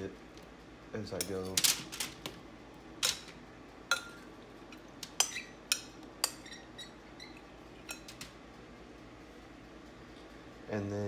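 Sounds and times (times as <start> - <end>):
kitchenware clinking: 3.0 - 8.3.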